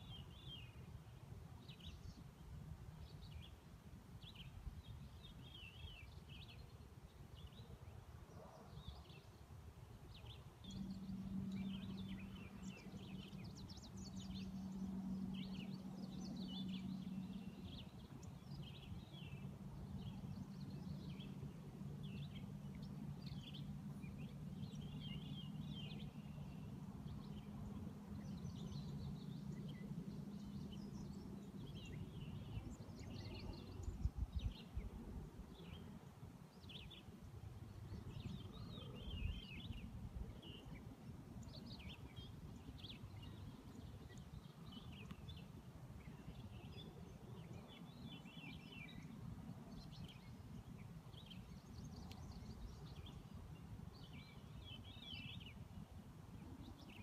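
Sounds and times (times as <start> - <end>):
faint low hum: 0.0 - 57.0.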